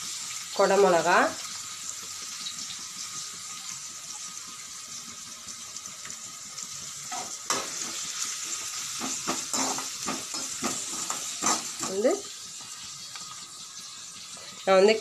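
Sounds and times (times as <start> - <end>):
vegetables sizzling in oil: 0.0 - 15.0
steel spatula scraping pan: 8.9 - 12.2.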